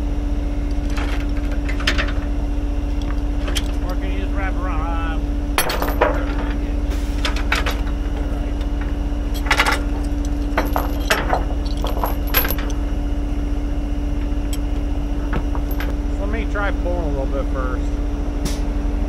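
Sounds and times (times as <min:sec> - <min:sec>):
truck engine idling: 0:00.3 - 0:18.0
chain rattling on wooden deck: 0:03.0 - 0:04.0, 0:05.6 - 0:06.6, 0:07.3 - 0:12.8, 0:15.3 - 0:15.9.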